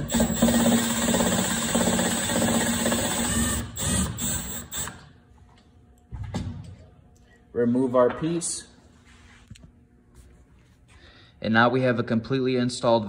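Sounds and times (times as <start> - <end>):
cordless drill running: 0.0 - 5.1.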